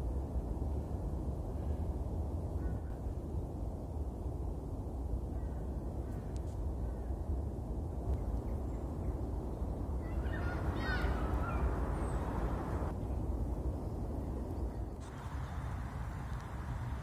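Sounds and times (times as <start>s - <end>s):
bird calling: 10.0s - 12.9s.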